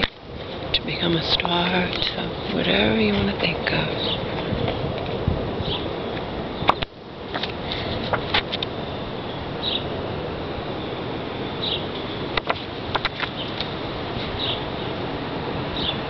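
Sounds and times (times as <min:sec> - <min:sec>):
outdoor hiss: 0:00.0 - 0:16.0
photographs being shuffled: 0:07.4 - 0:08.6.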